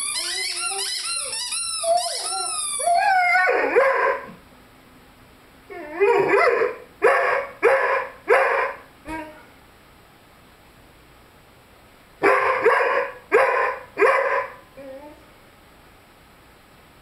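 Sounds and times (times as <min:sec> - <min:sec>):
puppy howling: 0:00.1 - 0:04.4, 0:05.7 - 0:09.4.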